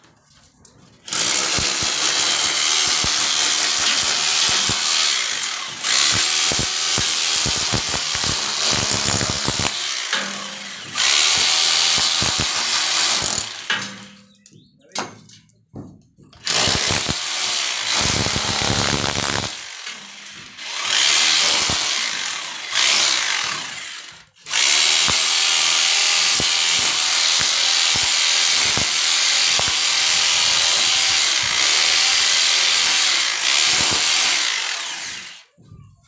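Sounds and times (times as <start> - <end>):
rotary hammer chiselling brick: 1.1 - 9.8, 10.4 - 13.7, 16.4 - 19.6, 20.9 - 22.2, 24.5 - 34.7.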